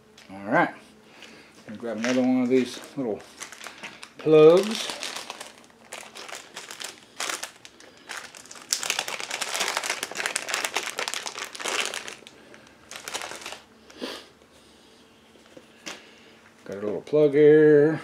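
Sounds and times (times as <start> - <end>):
plastic bag crinkling: 1.7 - 13.7.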